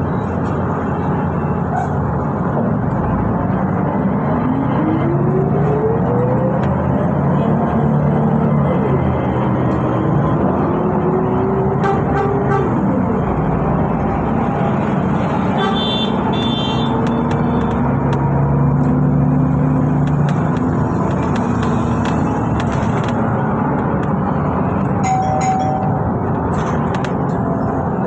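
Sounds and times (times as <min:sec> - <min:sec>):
bus engine and road noise: 0:00.0 - 0:28.0
engine whine: 0:00.0 - 0:28.0.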